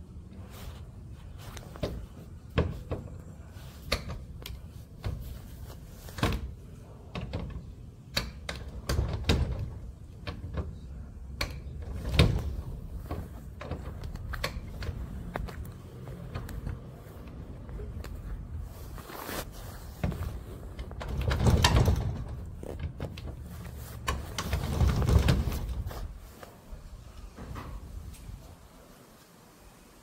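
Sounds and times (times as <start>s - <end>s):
knocks clunks and rattles: 3.9s - 18.9s, 19.6s - 26.2s.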